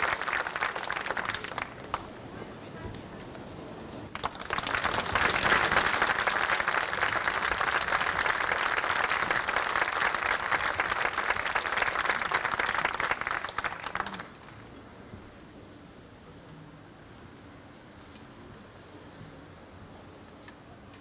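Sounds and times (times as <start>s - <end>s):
audience applauding: 0.0s - 2.1s, 4.1s - 14.6s.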